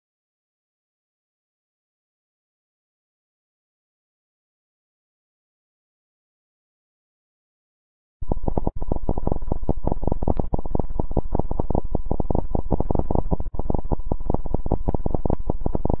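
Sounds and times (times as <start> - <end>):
distorted electronic crackle: 8.2 - 16.0.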